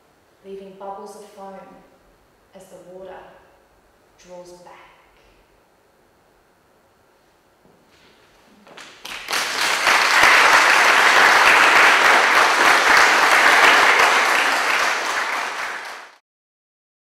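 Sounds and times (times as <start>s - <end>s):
audience applauding: 8.6s - 16.2s.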